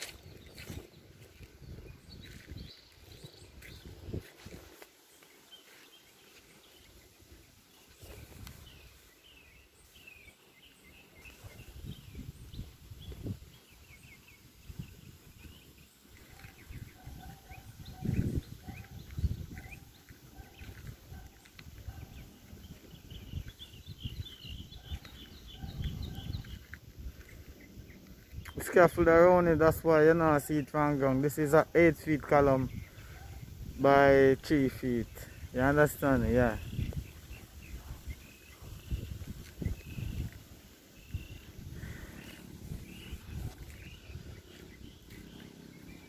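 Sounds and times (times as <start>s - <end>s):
birds chirping: 0.0s - 46.0s.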